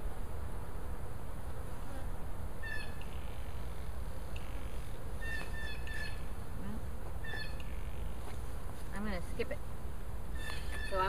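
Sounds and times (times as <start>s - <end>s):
bees buzzing: 0.0s - 8.8s.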